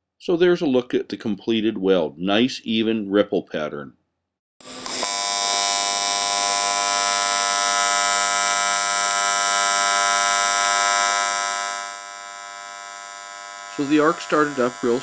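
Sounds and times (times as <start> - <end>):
welding arc buzzing: 4.6 - 15.0.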